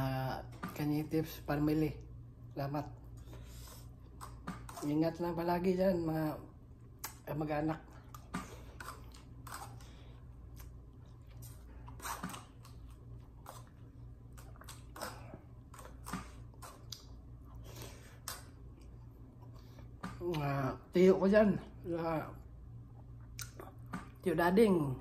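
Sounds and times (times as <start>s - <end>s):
low steady hum: 0.0s - 25.0s
quiet chewing: 7.8s - 20.5s, 22.9s - 24.2s.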